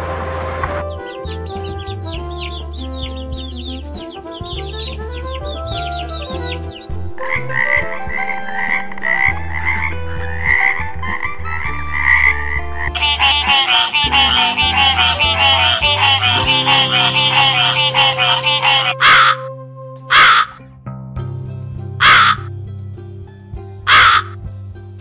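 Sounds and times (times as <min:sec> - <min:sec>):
background music: 0:00.0 - 0:25.0
chicks peeping: 0:01.1 - 0:06.9, 0:12.9 - 0:19.4
frogs croaking: 0:12.0 - 0:19.4, 0:20.1 - 0:20.6, 0:22.0 - 0:22.5, 0:23.9 - 0:24.4.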